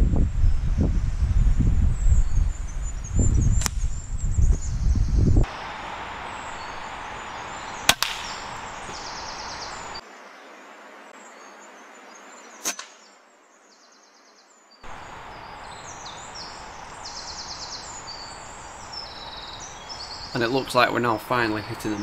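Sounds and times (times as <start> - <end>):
wind noise: 0.0 - 10.0, 14.8 - 22.0
air rifle firing: 7.9 - 8.8.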